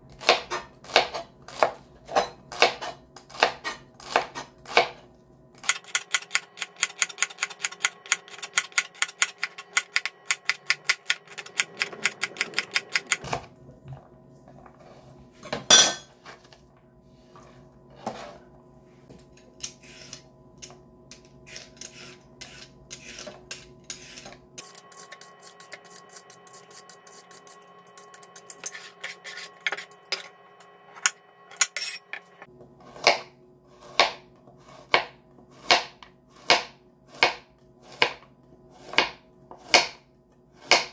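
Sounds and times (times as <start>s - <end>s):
knife chopping on plastic board: 0.2s - 5.0s, 32.9s - 38.2s, 38.8s - 40.0s, 40.6s - 40.9s
vegetable peeler scraping carrot: 5.6s - 13.2s, 21.4s - 30.0s.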